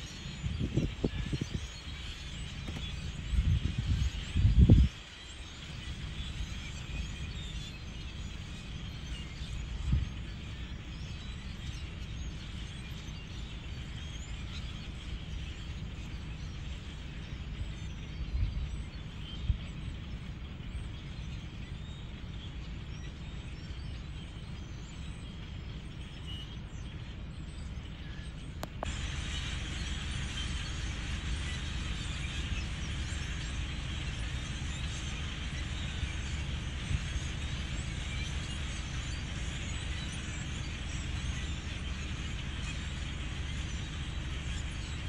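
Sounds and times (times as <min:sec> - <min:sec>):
distant flock of blackbirds chattering: 0:00.0 - 0:45.0
low wind rumble: 0:00.0 - 0:45.0
click: 0:28.6 - 0:28.9.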